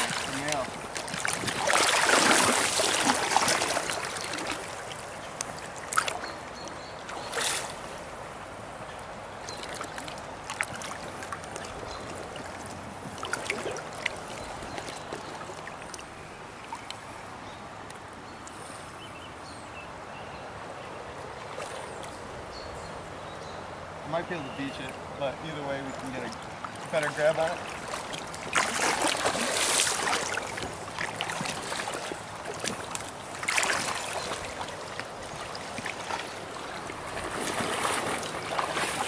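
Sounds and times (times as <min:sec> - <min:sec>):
fish thrashing and splashing: 0:00.0 - 0:04.9, 0:27.5 - 0:39.0
gentle river water: 0:00.0 - 0:39.0.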